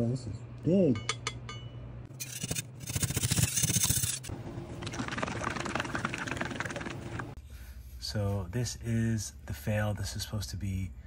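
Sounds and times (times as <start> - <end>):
metal scraper rasping on plate: 2.1 - 4.3.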